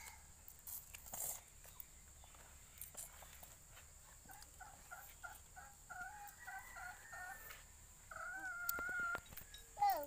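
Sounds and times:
chicken calling: 0:04.3 - 0:09.4.

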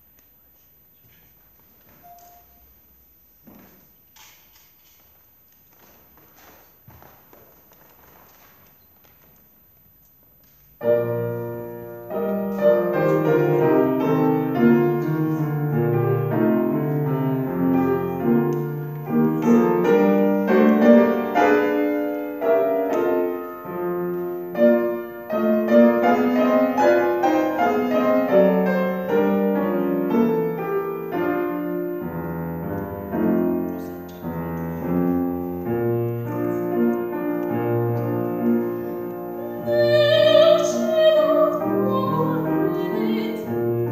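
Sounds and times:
grand piano playing: 0:10.8 - 0:43.9.

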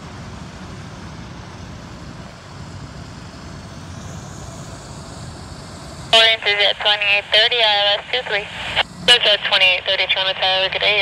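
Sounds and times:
steady low rumble: 0:03.2 - 0:11.0.

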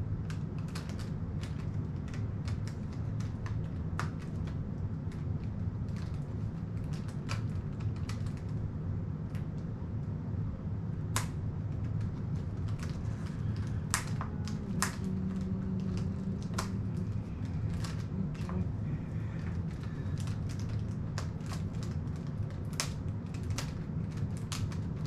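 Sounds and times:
steady low hum: 0:00.0 - 0:25.0
small object clicking in hands: 0:11.1 - 0:18.6, 0:19.4 - 0:25.0.

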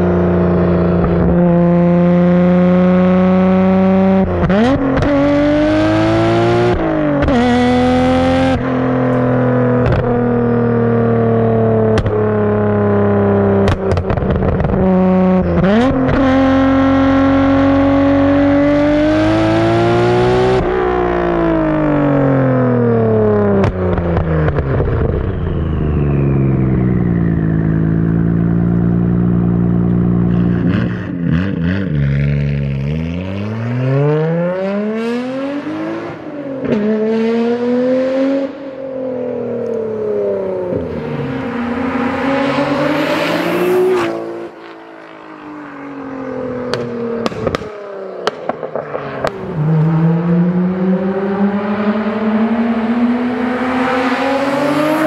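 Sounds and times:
car engine accelerating hard: 0:00.0 - 0:55.0
exhaust pops: 0:09.8 - 0:10.2, 0:13.6 - 0:14.8, 0:46.6 - 0:49.5.

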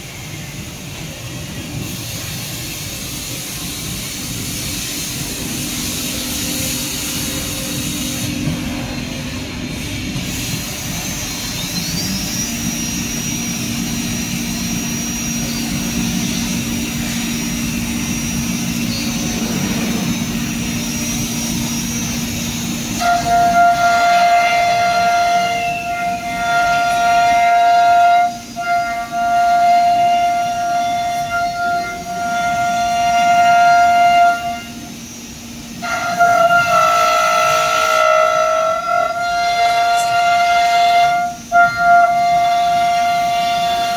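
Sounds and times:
machine hum and whine: 0:00.0 - 0:43.9.

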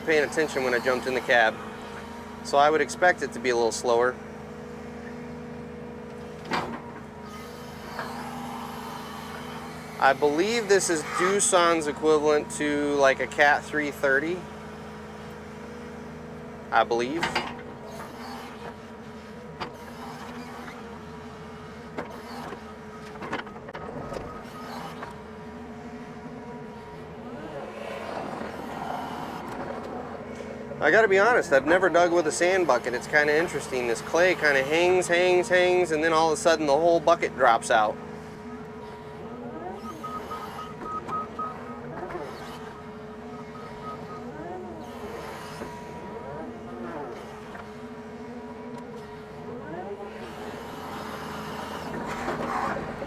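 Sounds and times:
excavator diesel engine running: 0:00.0 - 0:53.0
hydraulic whine: 0:00.0 - 0:53.0
rapid high beeps: 0:39.8 - 0:41.9, 0:42.5 - 0:44.3.

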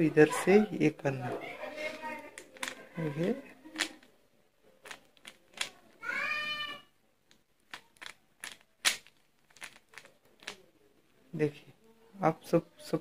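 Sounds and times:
puzzle cube clicking: 0:02.3 - 0:04.1, 0:04.8 - 0:06.0, 0:07.3 - 0:10.7.

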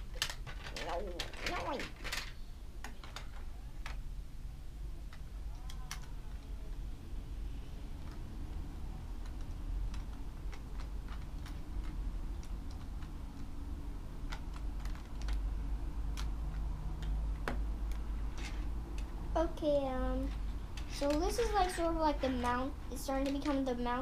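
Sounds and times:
plastic bricks clicking: 0:00.0 - 0:04.0, 0:14.2 - 0:15.5.

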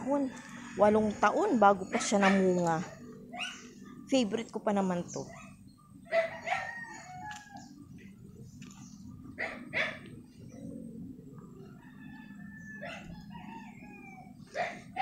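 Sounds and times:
rooster crowing: 0:00.0 - 0:01.2, 0:06.1 - 0:08.0, 0:11.6 - 0:15.0
steady low rumble: 0:07.3 - 0:12.4.

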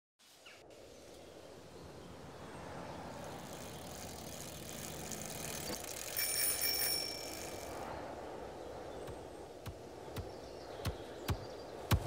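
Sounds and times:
bicycle bell ringing: 0:05.0 - 0:07.9
steady low rushing noise: 0:07.5 - 0:12.0.

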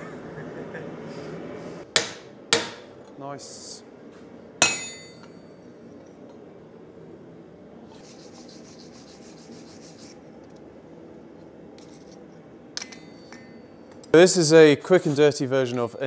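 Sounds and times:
hammer striking steel stamp: 0:01.9 - 0:02.9, 0:04.6 - 0:05.3.

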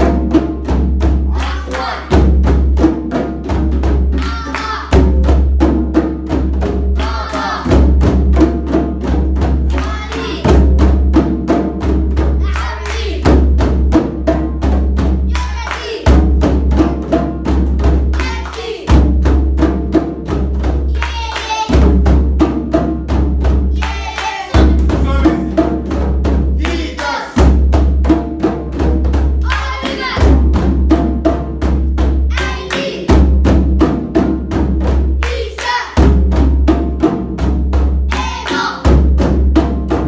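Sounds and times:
children clapping in rhythm: 0:00.0 - 0:13.9, 0:14.8 - 0:22.4, 0:23.2 - 0:28.0, 0:29.2 - 0:30.5, 0:31.7 - 0:33.5, 0:34.6 - 0:36.7, 0:37.5 - 0:39.2
children chanting: 0:01.2 - 0:02.4, 0:04.1 - 0:05.1, 0:06.9 - 0:07.9, 0:09.6 - 0:10.7, 0:12.3 - 0:13.5, 0:15.2 - 0:17.1, 0:18.1 - 0:19.0, 0:20.9 - 0:22.0, 0:23.7 - 0:25.5, 0:26.6 - 0:27.4, 0:29.4 - 0:30.5, 0:32.3 - 0:33.3, 0:35.2 - 0:36.2, 0:38.1 - 0:39.0.

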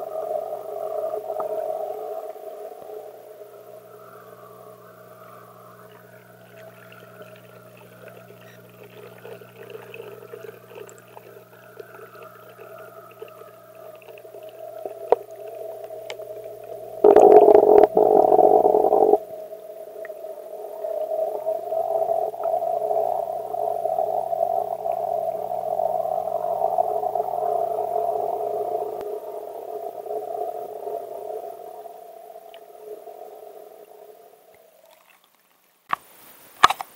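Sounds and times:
muffled underwater hum: 0:00.0 - 0:34.8
loud burst of noise: 0:17.0 - 0:19.2.

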